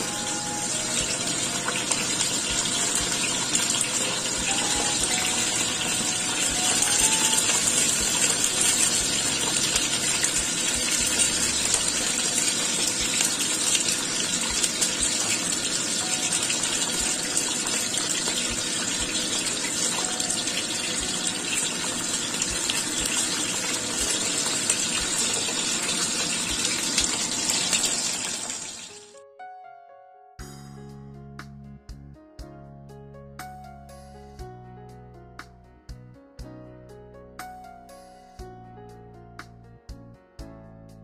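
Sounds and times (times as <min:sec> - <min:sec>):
food frying in wok: 0:00.0 - 0:29.0.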